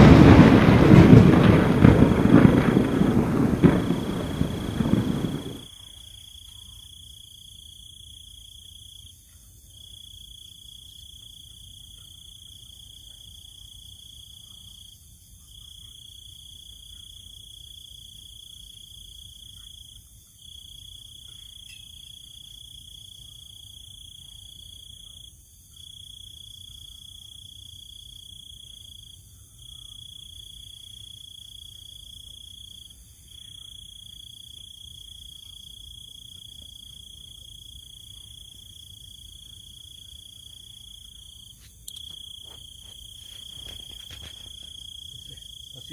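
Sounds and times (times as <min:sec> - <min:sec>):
crickets trilling: 0:00.0 - 0:45.9
faint high insect hiss: 0:00.0 - 0:45.9.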